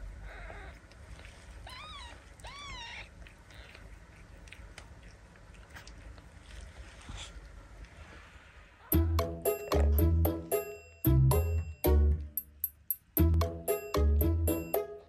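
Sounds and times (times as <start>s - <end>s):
faint rustling: 0.3s - 8.9s
kitten mewing: 1.6s - 4.0s.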